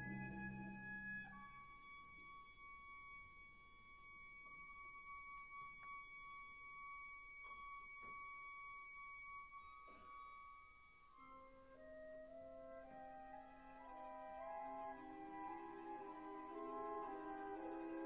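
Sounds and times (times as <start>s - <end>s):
soft orchestral music: 0.0s - 3.4s, 9.4s - 18.0s.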